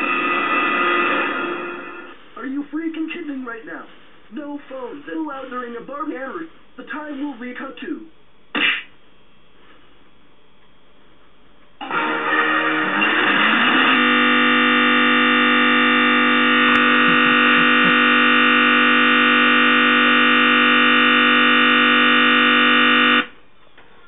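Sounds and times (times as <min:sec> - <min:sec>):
harsh looping computer buzz: 0:00.0 - 0:02.2, 0:11.8 - 0:23.4.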